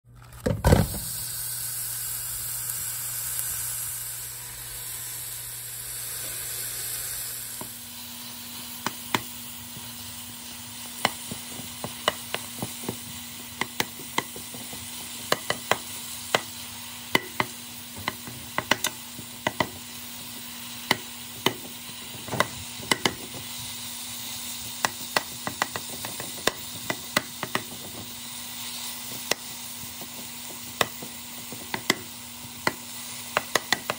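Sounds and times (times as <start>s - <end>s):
ground beef sizzling in a pot: 0.3s - 33.9s
utensil scraping and tapping pot: 8.7s - 23.8s, 24.6s - 33.9s.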